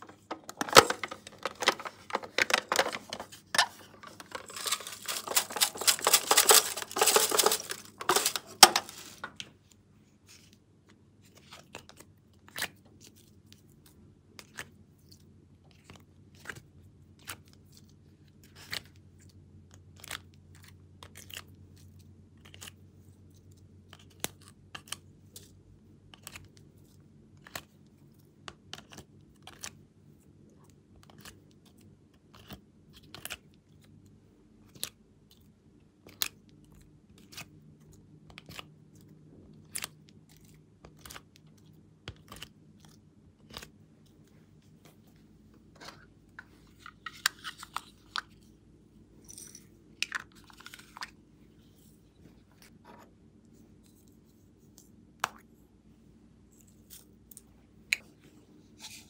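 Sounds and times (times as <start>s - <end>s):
crinkly rustle: 0.0s - 9.4s
plastic pieces clicking out of mould: 0.0s - 9.4s.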